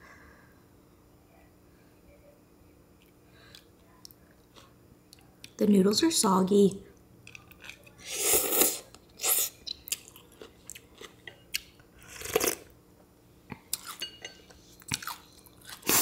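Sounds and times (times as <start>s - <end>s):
chewing: 7.3s - 12.6s, 13.5s - 16.0s
slurping noodles: 8.0s - 9.6s, 15.8s - 16.0s
slurping soup from spoon: 8.0s - 9.6s.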